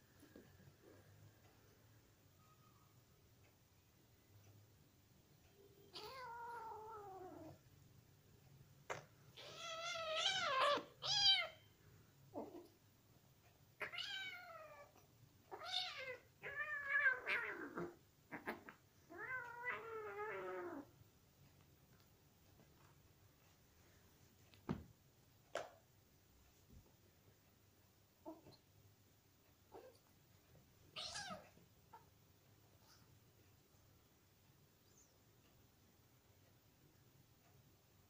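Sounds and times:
cats meowing: 0:05.8 - 0:07.6, 0:09.3 - 0:11.6, 0:13.8 - 0:20.9, 0:30.9 - 0:32.1.

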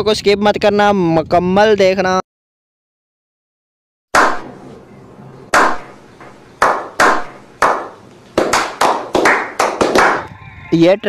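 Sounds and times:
slow hand claps: 0:04.2 - 0:04.5, 0:05.5 - 0:10.3.

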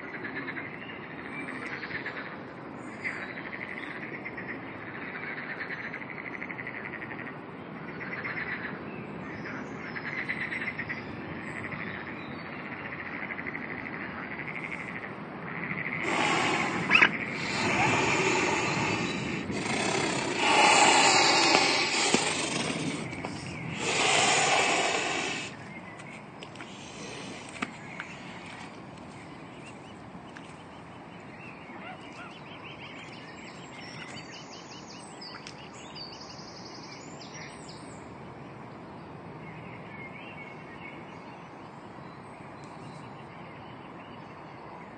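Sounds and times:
swan hissing: 0:16.0 - 0:25.6, 0:26.6 - 0:28.4.

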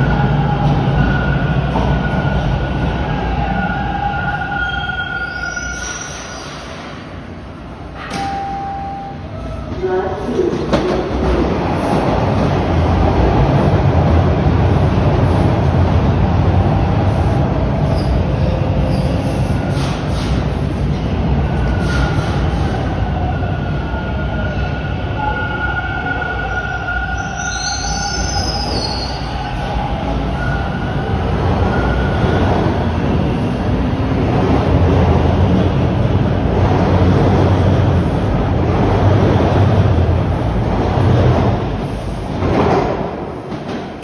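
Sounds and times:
subway train rumble: 0:00.0 - 0:44.0.

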